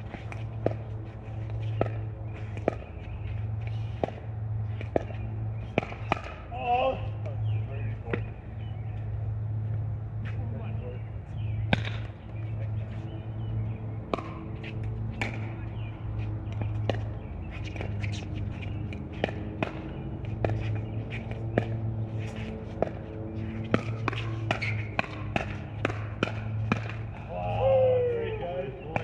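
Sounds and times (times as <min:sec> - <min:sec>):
ball bouncing on court: 0:00.0 - 0:03.2, 0:04.0 - 0:06.6, 0:08.0 - 0:08.3, 0:11.6 - 0:12.4, 0:14.0 - 0:27.4
steady low hum: 0:00.0 - 0:29.0
paddles hitting plastic ball: 0:04.8 - 0:06.4, 0:11.7 - 0:12.2, 0:22.7 - 0:27.3.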